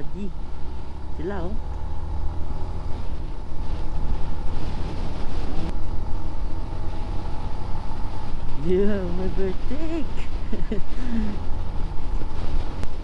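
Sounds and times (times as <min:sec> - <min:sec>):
motorcycle engine rumbling: 0:00.0 - 0:13.0
wind rushing over microphone: 0:00.3 - 0:13.0.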